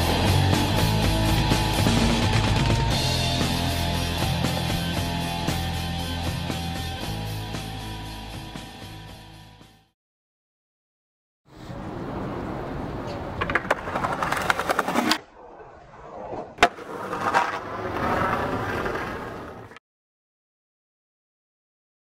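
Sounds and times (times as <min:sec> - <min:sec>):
skateboard wheels rolling on stone: 0:12.3 - 0:19.8
sharp skateboard crack: 0:13.0 - 0:19.8
skateboard clacks: 0:13.1 - 0:15.2, 0:16.1 - 0:19.8.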